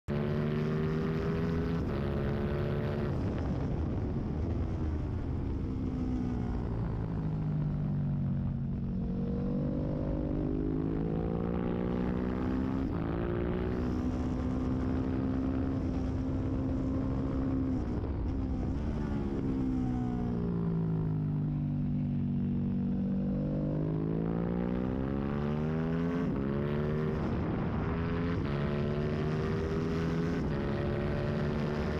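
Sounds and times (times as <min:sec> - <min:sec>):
racing motorcycle engine high revs: 0:00.1 - 0:03.2, 0:22.6 - 0:31.9.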